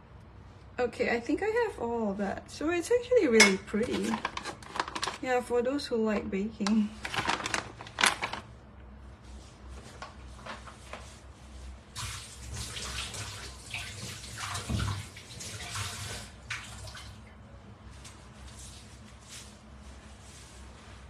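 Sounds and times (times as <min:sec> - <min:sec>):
water running from a tap: 0:12.0 - 0:17.2.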